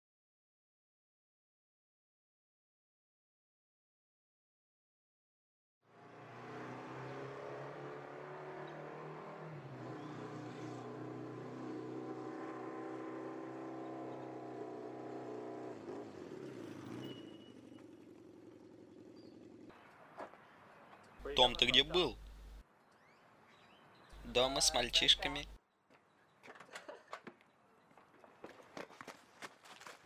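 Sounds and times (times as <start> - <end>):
motorcycle engine pulling away: 5.9 - 21.1.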